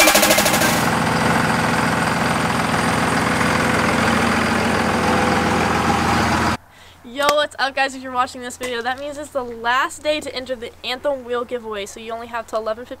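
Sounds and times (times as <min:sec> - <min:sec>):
diesel engine idling: 0:00.0 - 0:06.6.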